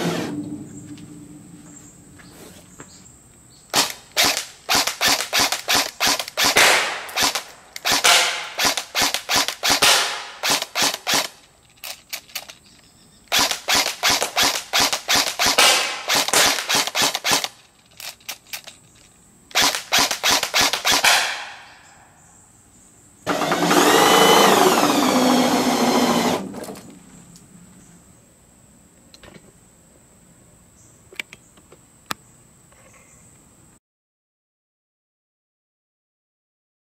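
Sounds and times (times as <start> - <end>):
airsoft gun firing bursts: 3.8 - 11.4, 13.3 - 17.6, 19.5 - 21.8.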